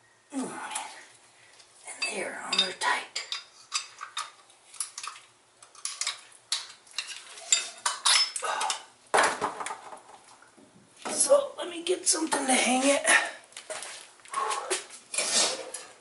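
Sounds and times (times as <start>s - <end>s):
metal scraping: 14.4s - 16.0s.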